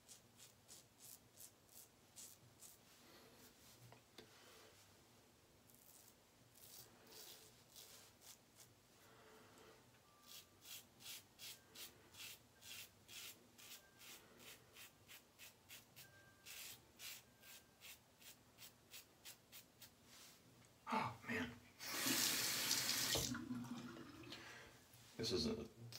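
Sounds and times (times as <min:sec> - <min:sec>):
razor scraping stubble: 0:00.0 - 0:02.8, 0:05.7 - 0:08.7.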